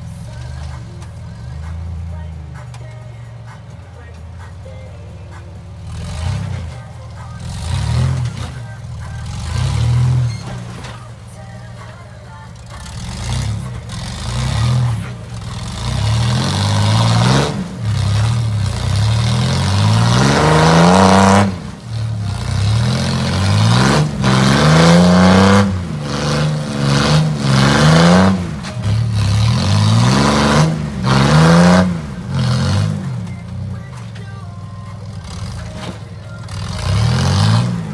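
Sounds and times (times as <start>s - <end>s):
buggy engine revving hard: 5.7s - 6.8s, 7.4s - 11.0s, 12.6s - 33.8s, 35.0s - 37.9s.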